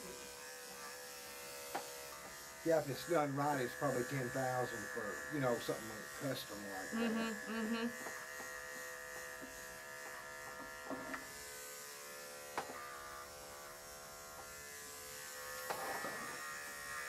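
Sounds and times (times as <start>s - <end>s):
electric clippers humming: 0.0s - 17.0s.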